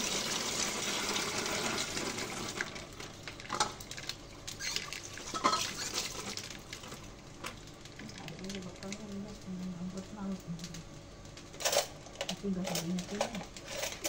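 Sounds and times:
kitchen tap running: 0:00.0 - 0:09.3
kitchenware clinking: 0:04.7 - 0:06.2.

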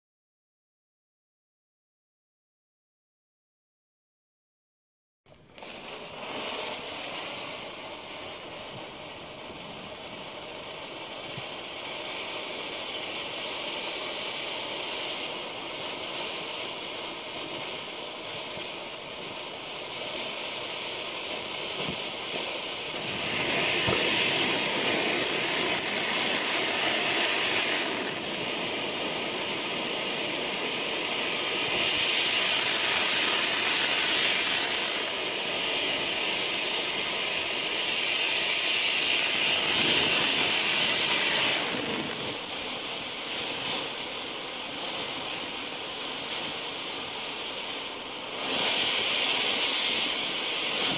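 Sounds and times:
firework fountain hissing: 0:05.3 - 0:50.9.

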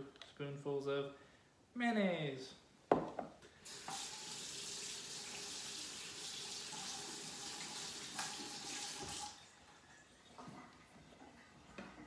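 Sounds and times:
kitchen faucet running into sink: 0:03.6 - 0:10.6.

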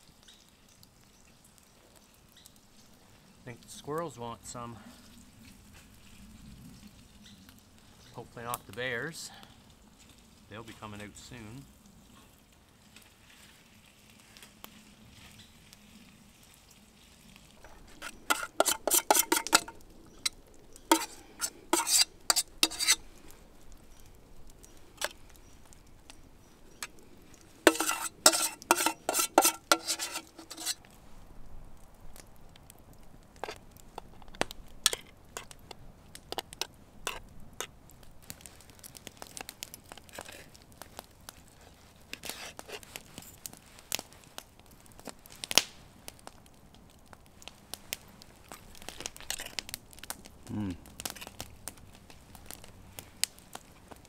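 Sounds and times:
metal spoon scraping a pot: 0:17.6 - 0:23.0, 0:27.7 - 0:30.8
fork and knife clicking on pan: 0:18.0 - 0:20.3, 0:20.9 - 0:23.0, 0:27.7 - 0:30.8.

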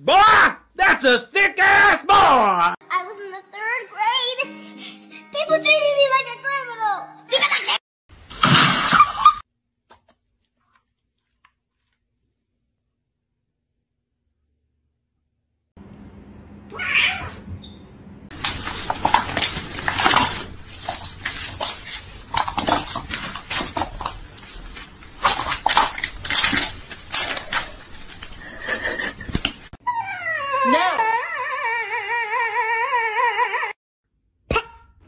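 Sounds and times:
dog howling: 0:29.8 - 0:33.8
harsh animal cries: 0:29.8 - 0:33.8.

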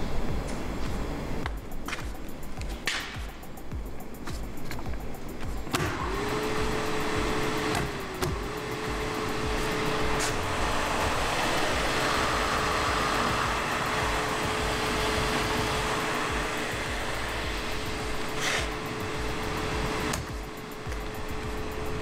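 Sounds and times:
oven fan motor whine: 0:05.3 - 0:22.0
rush of air: 0:05.6 - 0:20.2.

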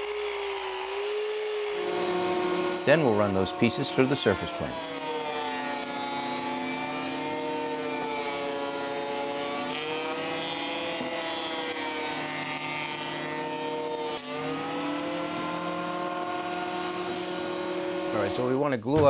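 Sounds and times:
planer motor whine: 0:00.0 - 0:18.6.

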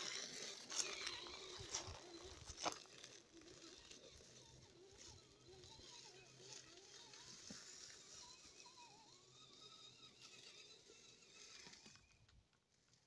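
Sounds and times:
toy car electric motor whine: 0:00.0 - 0:12.4.

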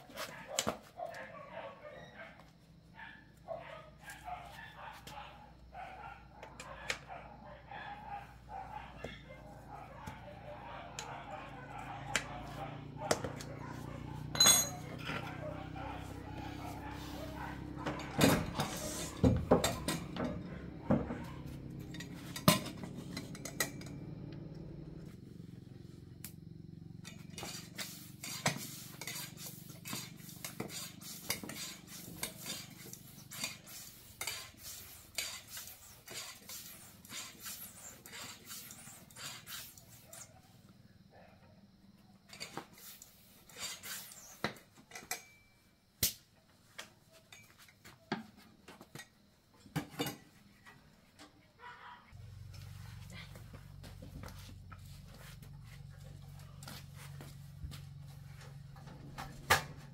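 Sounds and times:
metal tools clinking on bicycle wheel: 0:14.2 - 0:15.4, 0:21.7 - 0:24.1, 0:42.3 - 0:45.6.

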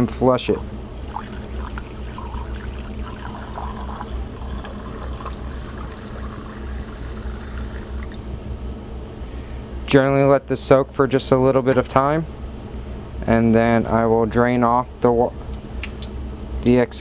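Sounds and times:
water running into a beaker: 0:00.5 - 0:08.2
low hum: 0:00.5 - 0:09.8.

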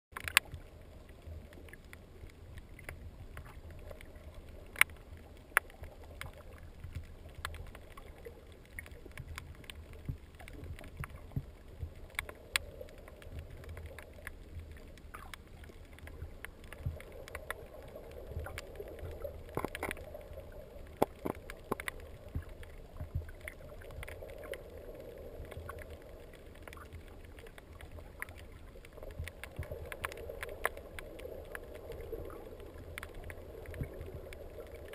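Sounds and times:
underwater rumble of water: 0:00.1 - 0:34.9
sharp clicks: 0:00.2 - 0:00.6.

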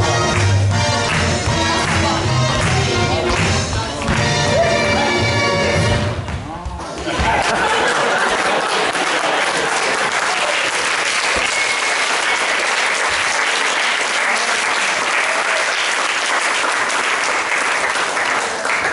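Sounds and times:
crowd applauding: 0:07.0 - 0:18.9.

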